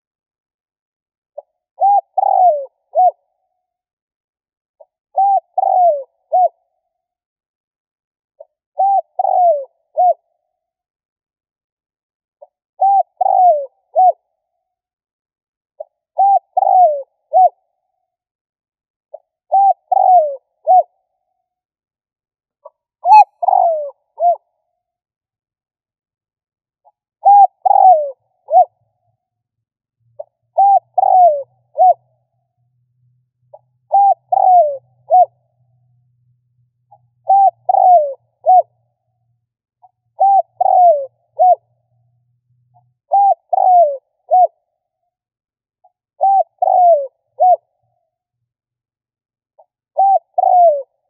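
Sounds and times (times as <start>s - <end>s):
dove cooing: 1.8s - 3.2s, 5.2s - 6.6s, 8.8s - 10.2s, 12.8s - 14.2s, 16.2s - 17.6s, 19.5s - 21.0s, 23.0s - 24.4s, 27.2s - 28.7s, 30.2s - 32.0s, 33.5s - 35.4s, 36.9s - 38.7s, 40.2s - 41.7s, 43.1s - 44.6s, 46.2s - 47.7s, 50.0s - 51.0s.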